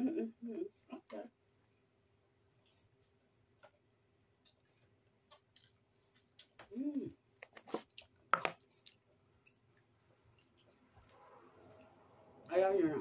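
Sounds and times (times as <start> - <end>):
person humming: 0.0 - 1.3, 6.7 - 7.2
wet mouth clicks and lip smacks: 4.4 - 6.8.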